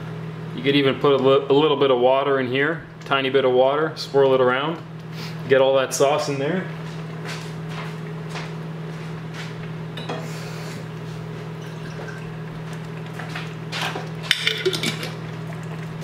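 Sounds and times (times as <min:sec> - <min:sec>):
steady low hum: 0:00.0 - 0:16.0
glass jar clinking: 0:11.6 - 0:12.3, 0:14.3 - 0:15.2.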